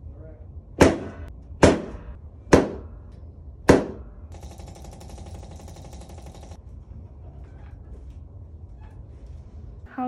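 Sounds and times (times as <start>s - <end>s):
buzzing rattle: 4.3s - 6.6s.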